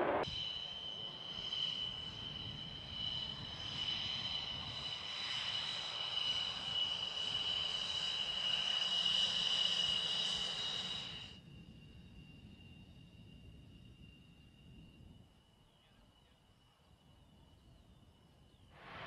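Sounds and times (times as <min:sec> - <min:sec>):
low rumble: 0:00.0 - 0:00.2
jet engines whining: 0:00.0 - 0:11.4.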